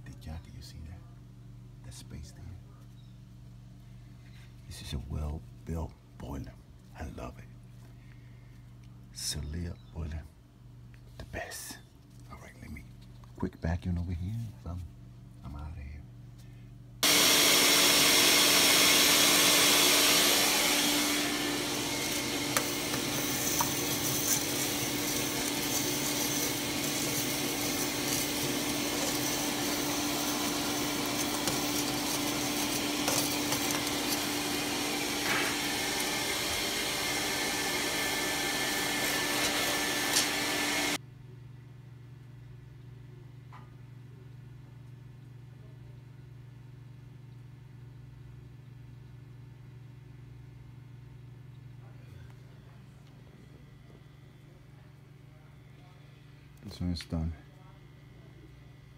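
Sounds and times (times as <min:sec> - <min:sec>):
vacuum cleaner running: 0:17.0 - 0:41.0.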